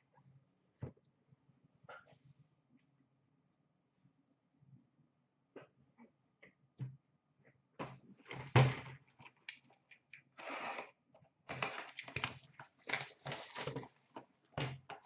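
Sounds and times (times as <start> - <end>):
packaging rustling: 11.5 - 14.2.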